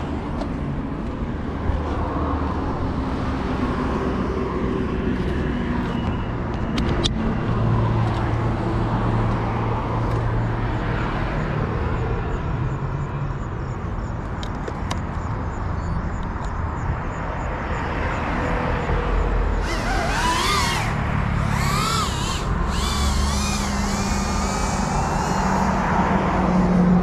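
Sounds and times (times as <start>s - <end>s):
road traffic noise: 0.0s - 27.0s
vehicle engine passing by: 19.5s - 27.0s.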